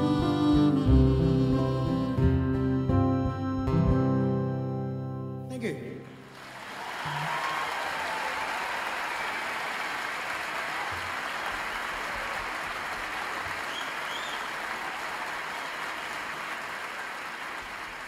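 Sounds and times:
audience applauding: 6.2 - 18.0
faint short whistle: 13.7 - 14.5.

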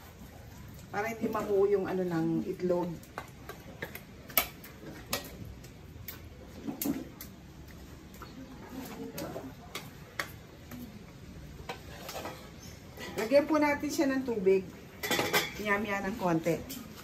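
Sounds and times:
utensil clicking against a wok: 2.5 - 8.4, 9.1 - 12.2.

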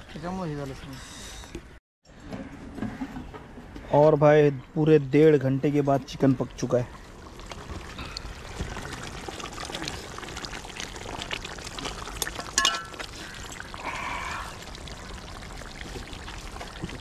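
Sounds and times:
curry bubbling in a pot: 6.2 - 17.0
ladle stirring: 8.5 - 13.7
ladle clinking against pot: 12.6 - 13.0.

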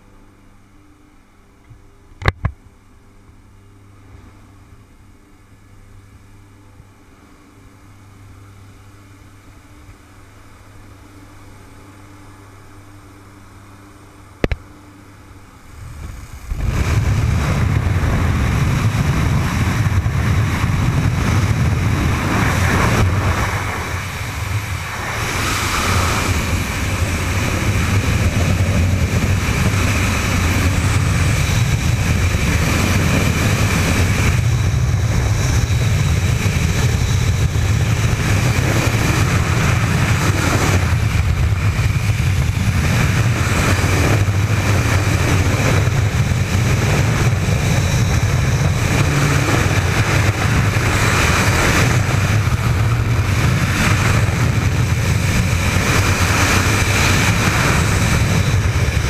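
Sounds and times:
muffled plane engine drone: 0.0 - 59.0
sharp click: 14.4 - 14.6
loud rush of wind: 15.5 - 59.0.

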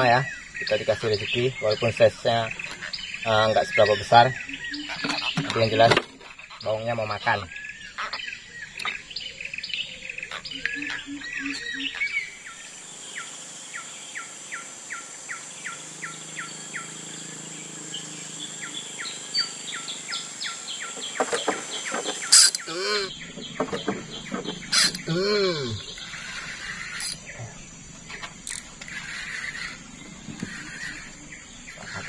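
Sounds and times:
scattered clicks and chirps: 0.0 - 7.4, 8.0 - 9.1, 10.2 - 12.3, 18.7 - 25.1, 25.8 - 32.0
high insect whine: 0.0 - 32.0.

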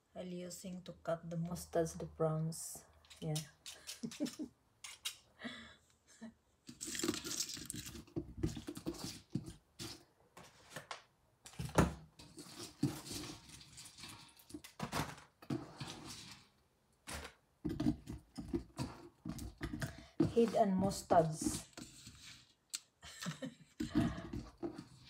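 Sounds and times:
prawns rustling in a steel sink: 6.7 - 10.9, 11.6 - 22.6.

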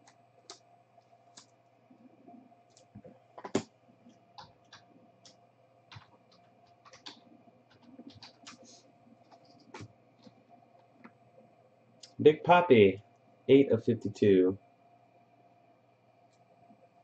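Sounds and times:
trading cards clicking and tapping: 2.7 - 3.7, 4.4 - 10.4.

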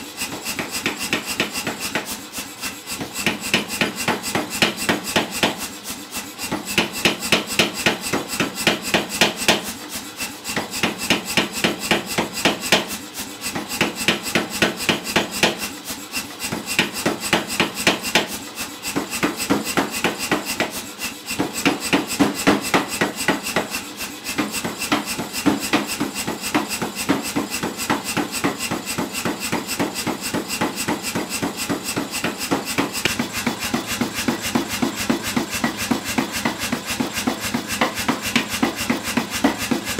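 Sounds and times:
power hammer striking steel: 2.9 - 5.7, 10.5 - 15.7, 16.4 - 39.9.

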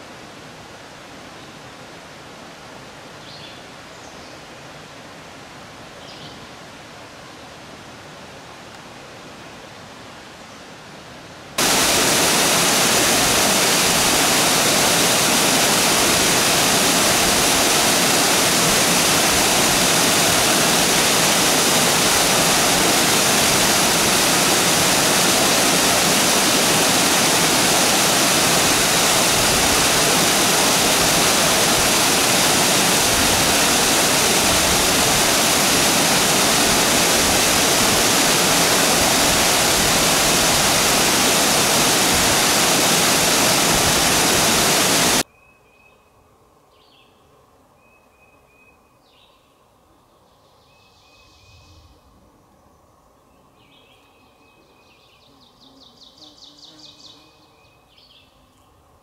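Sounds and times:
waterfall rushing into pool: 11.6 - 45.3.

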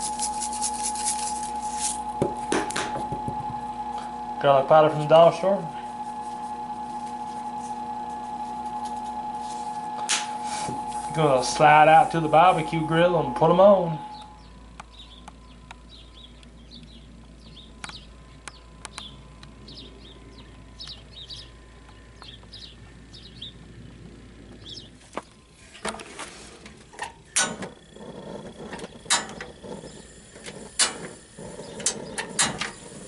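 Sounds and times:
small birds chirping: 14.0 - 25.5, 27.7 - 33.0.

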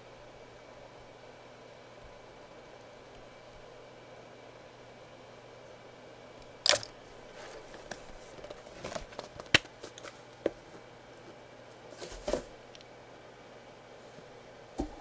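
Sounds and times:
cardboard box rustling: 7.3 - 10.7.

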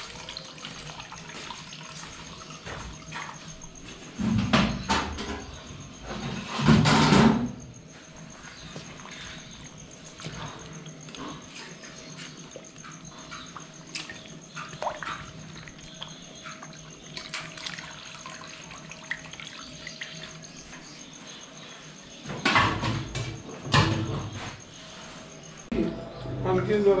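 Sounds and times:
broth sloshing in metal pot: 8.5 - 20.8.

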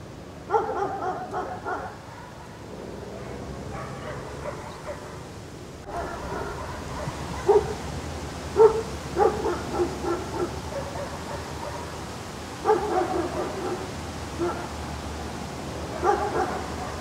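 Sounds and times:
dog yipping and barking: 0.5 - 2.6, 3.2 - 5.2, 5.9 - 7.8, 8.6 - 11.9, 12.6 - 14.7, 16.0 - 17.0.

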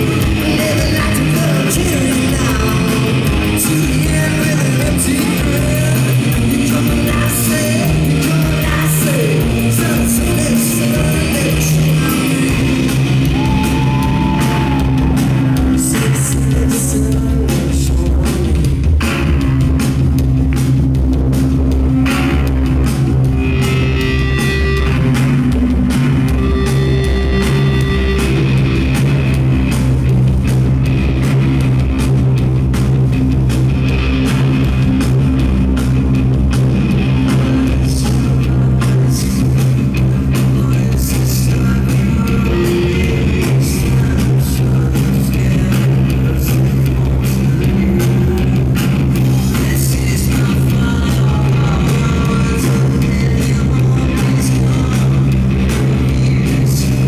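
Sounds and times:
person singing: 0.0 - 18.9, 37.2 - 57.0
electric guitar: 0.0 - 57.0
live rock band playing: 0.0 - 57.0.

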